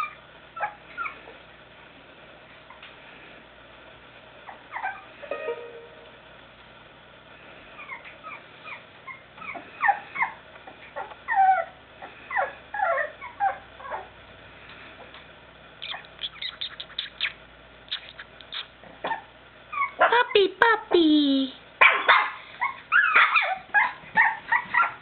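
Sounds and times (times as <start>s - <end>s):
puppies whimpering and yipping: 0.0s - 1.4s, 4.5s - 5.2s, 7.8s - 14.2s, 15.8s - 20.0s, 22.2s - 25.0s.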